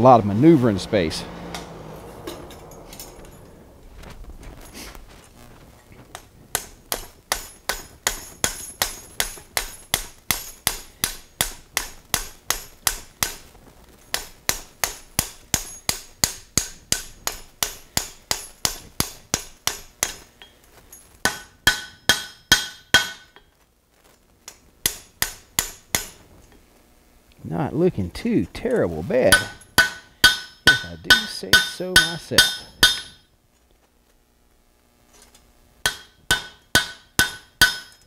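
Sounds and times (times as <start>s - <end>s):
hammer striking hot steel on anvil: 6.1s - 13.5s, 14.1s - 23.5s, 24.5s - 26.2s, 29.3s - 33.3s, 35.8s - 38.0s.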